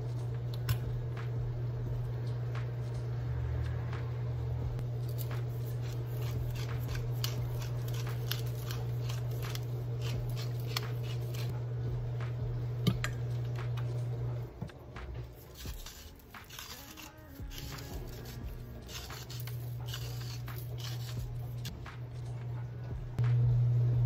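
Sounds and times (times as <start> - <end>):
steady low hum: 0.0 - 24.0
spice grinder crunching: 4.8 - 11.6, 15.2 - 22.0.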